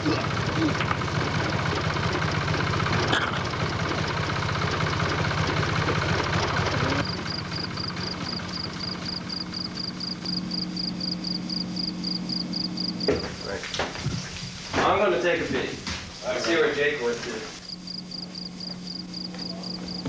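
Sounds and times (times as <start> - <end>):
car engine idling: 0.0 - 13.6.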